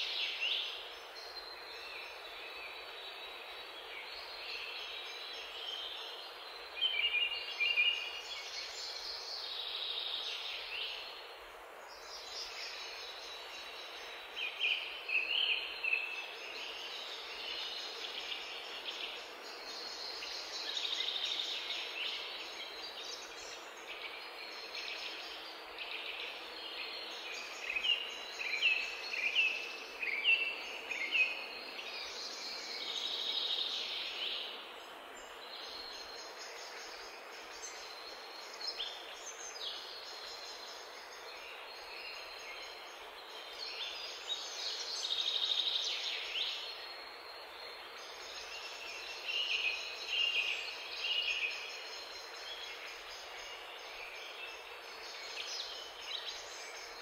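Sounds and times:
outdoor background noise: 0:00.0 - 0:57.0
wild birds chirping: 0:00.0 - 0:57.0.

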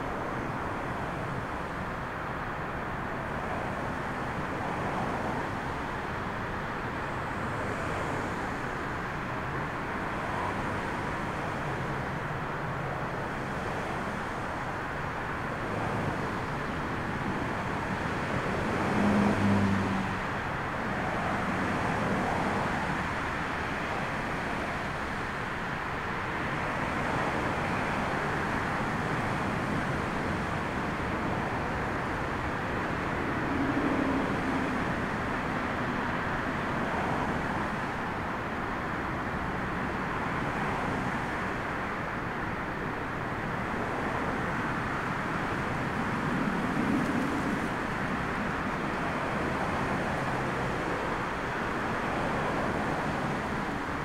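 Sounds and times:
strong wind: 0:00.0 - 0:54.0
jet engine noise: 0:20.2 - 0:54.0.

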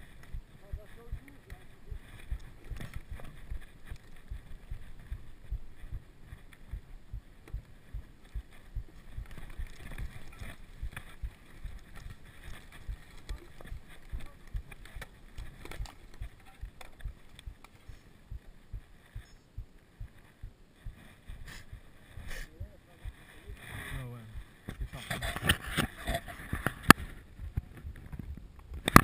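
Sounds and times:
bike clicks and rattles: 0:09.0 - 0:18.0.

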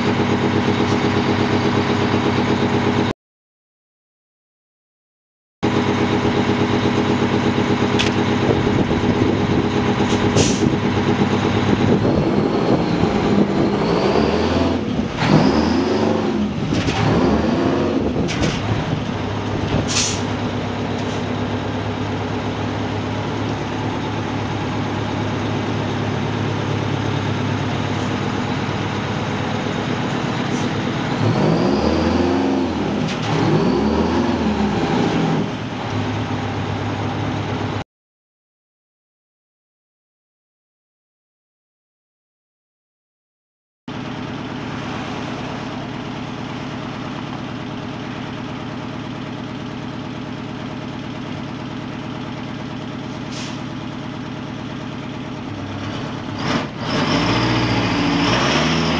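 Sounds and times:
diesel truck engine revving: 0:00.0 - 0:03.1, 0:05.6 - 0:37.8, 0:43.9 - 0:58.9
short sharp hisses: 0:10.1 - 0:10.7, 0:19.9 - 0:20.3, 0:53.1 - 0:53.7.

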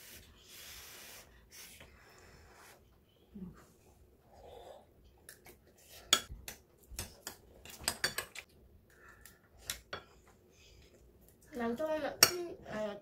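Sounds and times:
cutlery clinking on ceramic bowls: 0:07.2 - 0:08.5.

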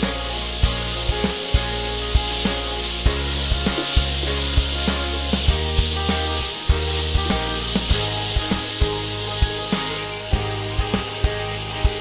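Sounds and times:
meat sizzling: 0:00.0 - 0:12.0
music with beat and bass: 0:00.0 - 0:12.0
spatula scraping a wok: 0:00.0 - 0:12.0.

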